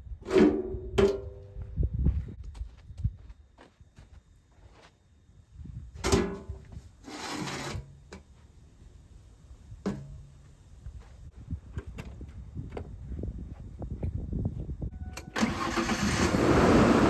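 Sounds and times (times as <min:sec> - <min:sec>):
metal ramp scraping on dirt: 0:06.0 - 0:08.0.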